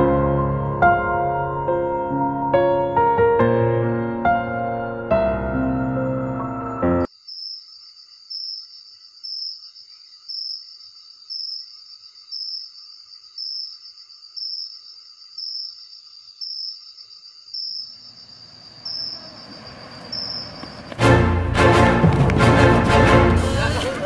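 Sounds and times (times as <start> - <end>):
insects chirping: 5.8 - 21.1.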